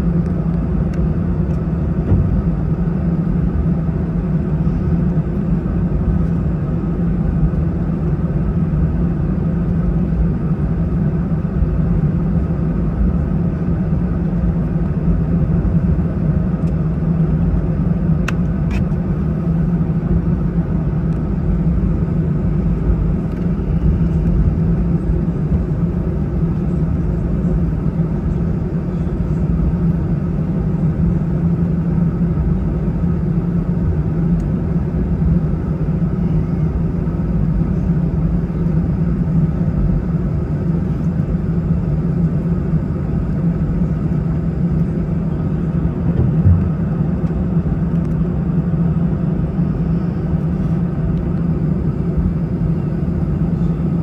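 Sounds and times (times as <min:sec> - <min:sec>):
airplane cabin rumble and hum: 0:00.0 - 0:54.0.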